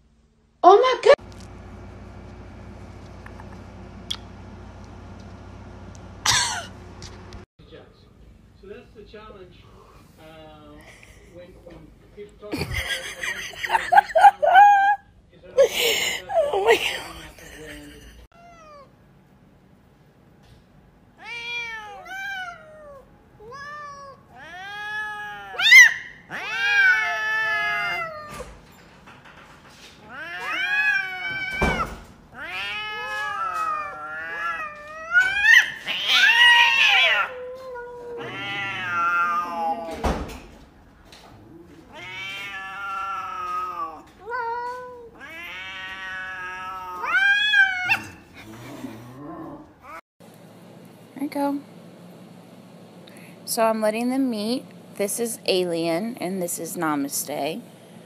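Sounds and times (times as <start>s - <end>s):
cats meowing and yowling: 18.4s - 18.9s, 21.2s - 28.5s, 30.0s - 40.2s, 41.7s - 48.2s.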